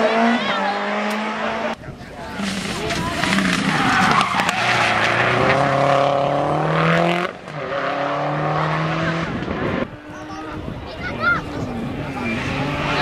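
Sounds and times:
rally car engine revving: 0.0s - 13.0s.

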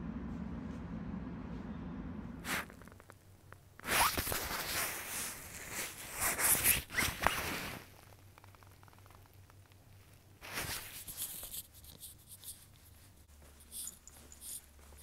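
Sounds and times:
nylon jacket rustling: 3.8s - 7.9s
zipper being pulled: 3.8s - 9.2s.

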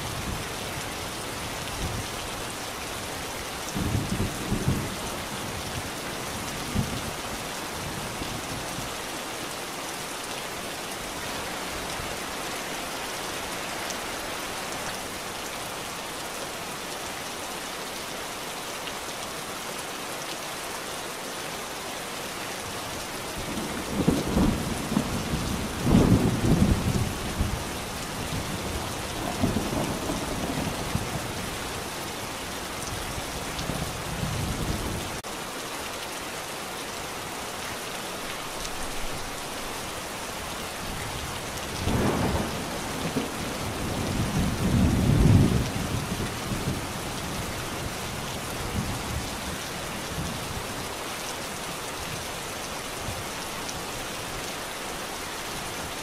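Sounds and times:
steady rain falling: 0.0s - 56.0s
thunder rumbling: 41.8s - 46.8s.

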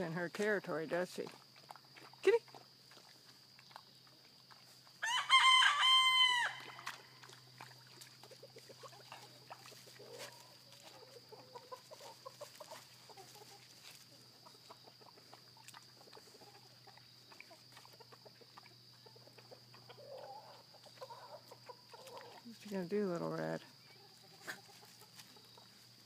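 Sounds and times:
chicken crowing: 5.0s - 7.2s.

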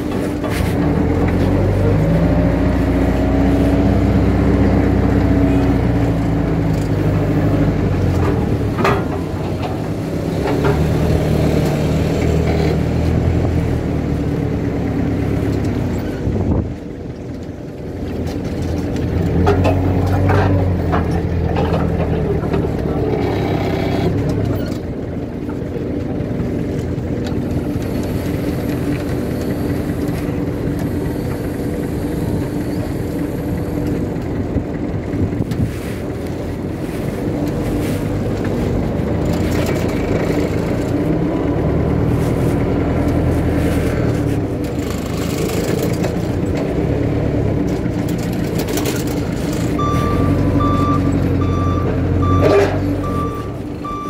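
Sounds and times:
forklift engine running: 0.0s - 54.0s
reversing beeper: 49.8s - 54.0s.

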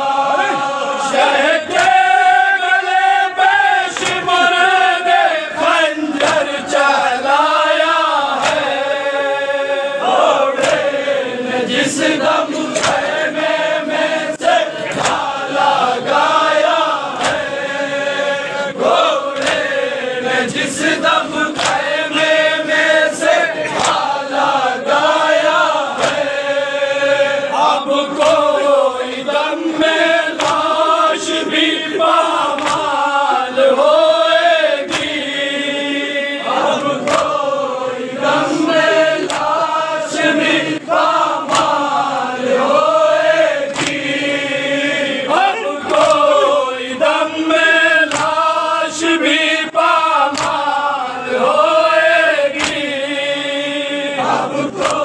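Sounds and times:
men chanting in unison: 0.0s - 55.0s
hands slapping chests: 1.6s - 2.4s, 3.8s - 6.9s, 8.1s - 9.0s, 10.2s - 11.1s, 11.8s - 13.5s, 14.4s - 17.9s, 18.9s - 26.5s, 28.0s - 33.8s, 34.7s - 35.5s, 36.5s - 37.6s, 38.4s - 42.3s, 43.3s - 44.4s, 45.3s - 48.7s, 49.3s - 50.9s, 52.3s - 53.2s, 54.3s - 55.0s.

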